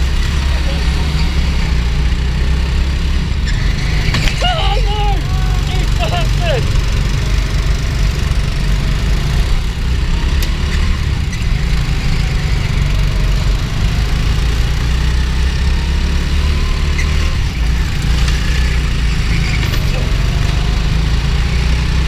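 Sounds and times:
go-kart engine rumble: 0:00.0 - 0:22.0.

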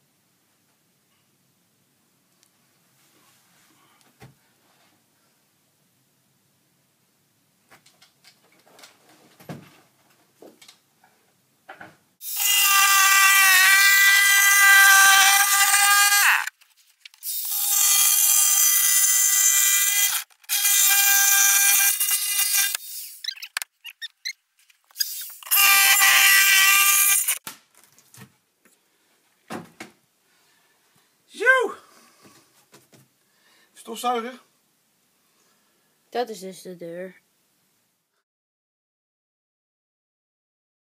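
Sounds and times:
power saw whining: 0:12.2 - 0:16.5, 0:25.0 - 0:27.4.

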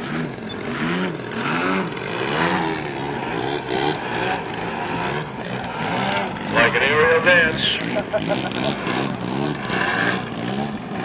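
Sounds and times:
model airplane engine running: 0:00.0 - 0:11.0.

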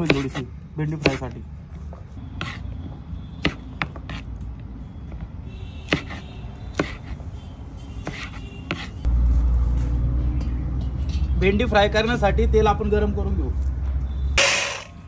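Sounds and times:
knife chopping on wooden board: 0:00.0 - 0:00.4, 0:01.0 - 0:01.3, 0:03.4 - 0:04.3, 0:05.8 - 0:07.2, 0:08.0 - 0:09.0.

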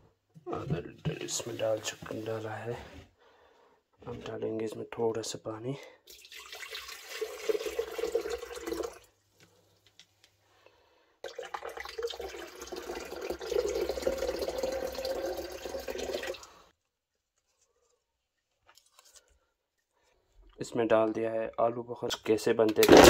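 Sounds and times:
water pouring into blender jar: 0:06.1 - 0:09.1, 0:11.2 - 0:16.6.

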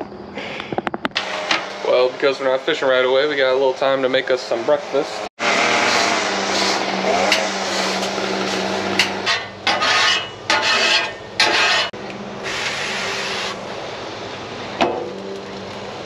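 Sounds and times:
grill brush scraping griddle: 0:04.9 - 0:13.6.

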